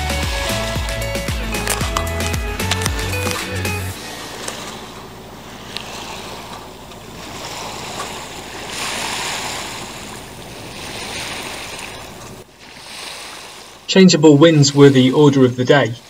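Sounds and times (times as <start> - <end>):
background music: 0.0 - 5.0
water rushing along boat hull: 0.0 - 16.0.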